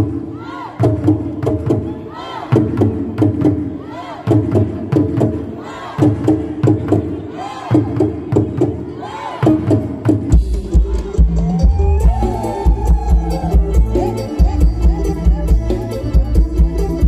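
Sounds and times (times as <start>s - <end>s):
performers shouting and whooping: 0.2s - 1.0s, 1.8s - 2.7s, 3.8s - 4.4s, 7.2s - 8.0s, 10.6s - 15.5s
drums in driving rhythm: 9.4s - 17.0s.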